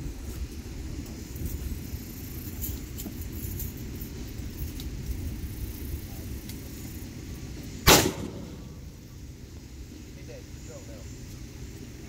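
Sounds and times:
wind rumble on microphone: 0.0 - 10.3
sudden loud noise burst: 7.9 - 9.1.

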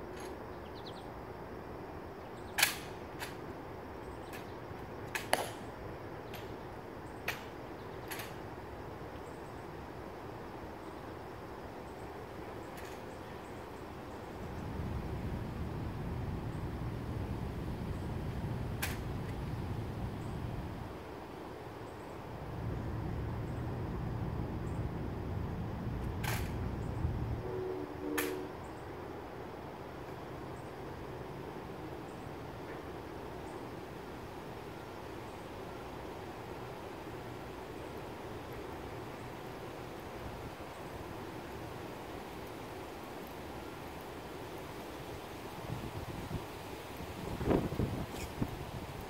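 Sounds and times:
quiet outdoor background: 0.0 - 49.0
low steady rumble: 13.5 - 21.0.

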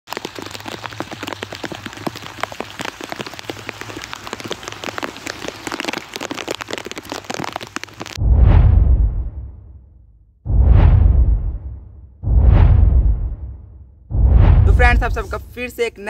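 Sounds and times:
rain patter: 0.0 - 8.2, 14.7 - 16.0.

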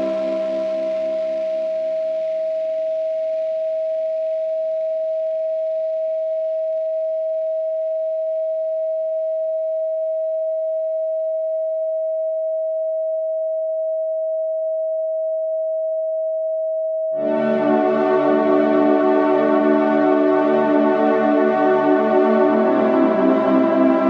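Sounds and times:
faint hazy wash: 0.0 - 1.6, 17.2 - 24.0
steady sine tone: 0.0 - 2.3, 17.2 - 24.0.

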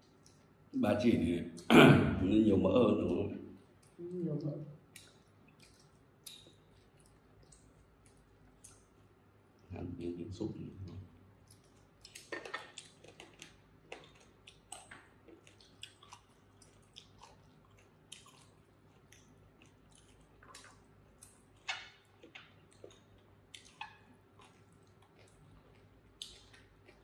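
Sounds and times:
people chewing food: 0.0 - 0.7, 1.5 - 27.0
wet mouth smacks: 5.0 - 8.9.

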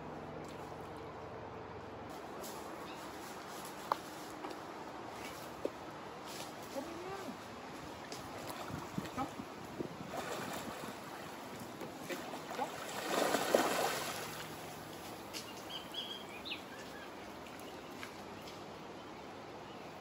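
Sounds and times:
moving water: 0.0 - 20.0
fish splashing at water surface: 10.0 - 14.8
bird chirps: 15.4 - 18.5.

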